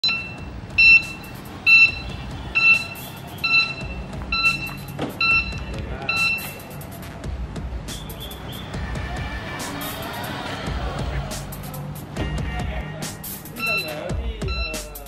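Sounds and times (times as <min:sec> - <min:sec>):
short electronic warning beeps: 0:00.0 - 0:06.7, 0:13.5 - 0:15.0.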